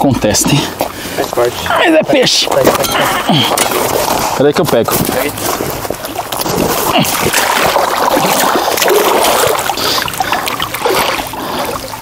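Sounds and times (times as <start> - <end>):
fish thrashing in splashing water: 2.5 - 12.0.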